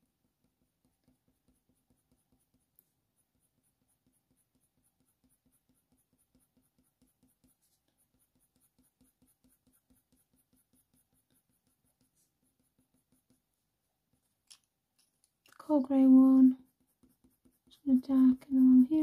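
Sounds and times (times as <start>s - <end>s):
pencil scratching on paper: 0.0s - 19.0s
pencil tick: 0.2s - 13.5s.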